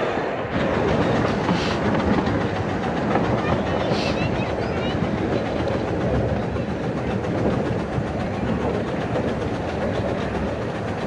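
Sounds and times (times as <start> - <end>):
train wheels running on track: 0.0 - 11.0.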